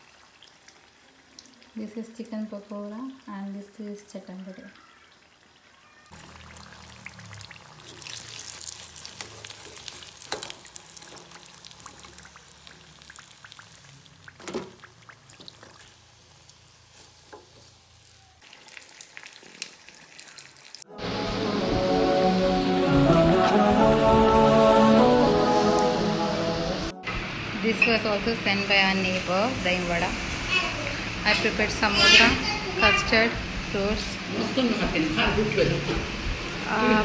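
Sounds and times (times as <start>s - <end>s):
food deep-frying in oil: 0.0s - 20.9s
music: 20.9s - 28.0s.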